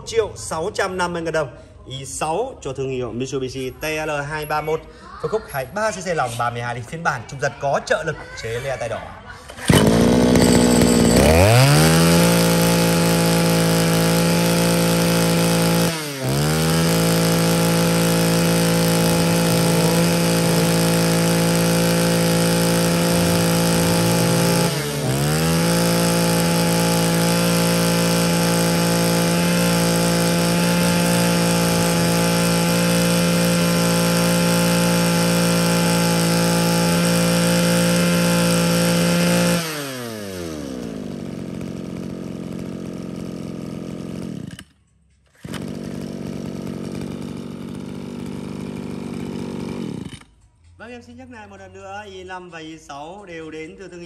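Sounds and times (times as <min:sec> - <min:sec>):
brush cutter engine running: 0:09.4 - 0:50.5.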